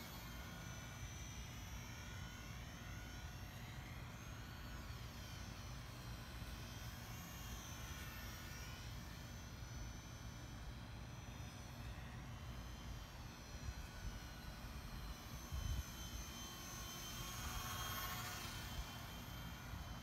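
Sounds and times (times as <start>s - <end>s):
model plane motor whining: 0.0s - 20.0s.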